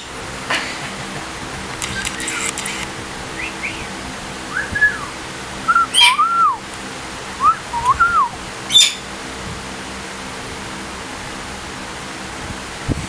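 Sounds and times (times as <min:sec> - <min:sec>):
faint steady hum: 0:00.0 - 0:13.0
parrots whistling: 0:03.4 - 0:03.9, 0:04.5 - 0:06.6, 0:07.4 - 0:09.0.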